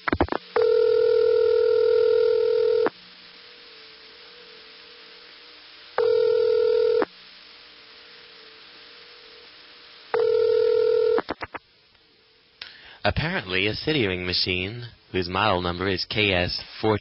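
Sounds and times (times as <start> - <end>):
faint line hum: 0.0 - 17.0
telephone ringback tone: 0.6 - 2.9, 6.0 - 7.1, 10.2 - 11.2.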